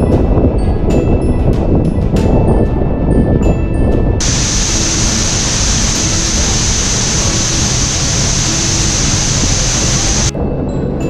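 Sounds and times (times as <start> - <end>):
waterfall rushing: 4.2 - 10.3
faint music: 4.2 - 11.0.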